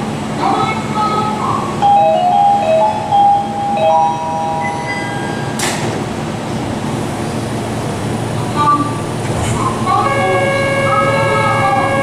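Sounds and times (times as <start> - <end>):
electronic door chime: 1.9 - 5.6
steady hum: 3.0 - 12.0.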